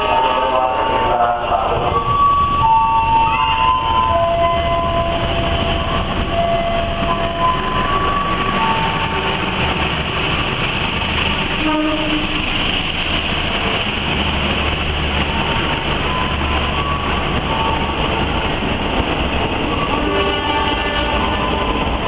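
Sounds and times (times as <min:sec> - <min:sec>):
train passing at speed: 0:00.0 - 0:22.0.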